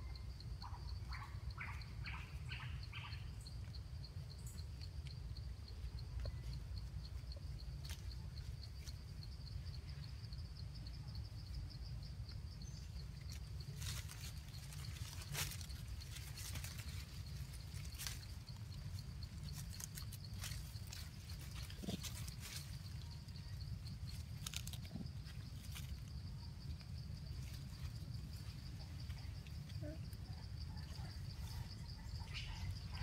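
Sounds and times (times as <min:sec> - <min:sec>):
high pulsing insect trill: 0:00.0 - 0:33.0
branches and leaves rustling: 0:12.9 - 0:29.8.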